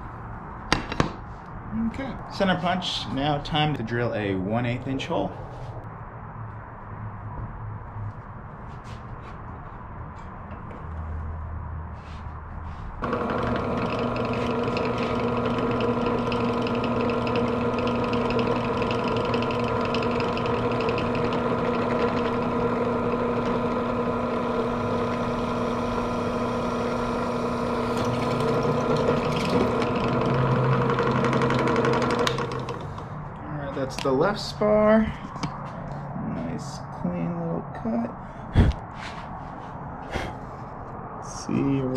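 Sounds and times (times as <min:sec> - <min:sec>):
drill bit scraping: 0:13.0 - 0:33.1
drill press motor humming: 0:13.0 - 0:33.2.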